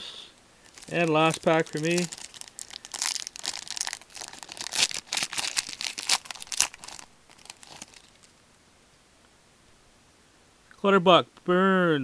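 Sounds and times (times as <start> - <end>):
wrapper tearing and crinkling: 0.6 - 8.3.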